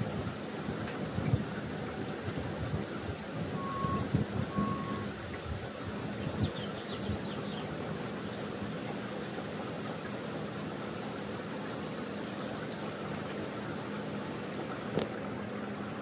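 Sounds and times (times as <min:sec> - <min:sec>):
short beeps: 0:03.6 - 0:05.1.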